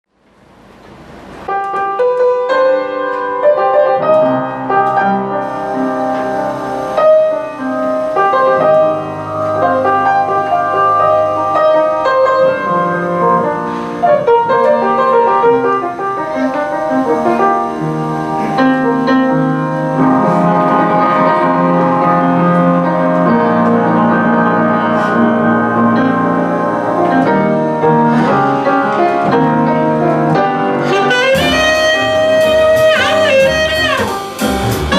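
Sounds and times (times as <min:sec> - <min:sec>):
acoustic piano: 0:00.1 - 0:34.9
double bass: 0:05.5 - 0:34.9
drums: 0:30.3 - 0:34.9.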